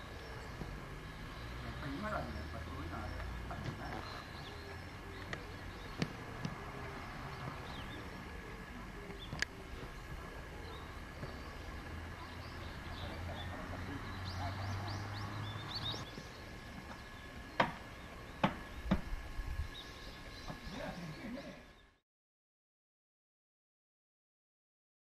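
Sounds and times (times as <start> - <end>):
birds chirping: 0.0 - 22.0
low steady hum: 0.0 - 22.0
sharp knocks: 17.6 - 19.1.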